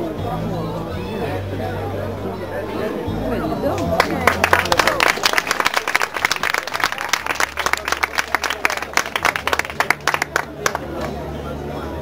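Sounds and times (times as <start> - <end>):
audience applauding: 3.9 - 11.1.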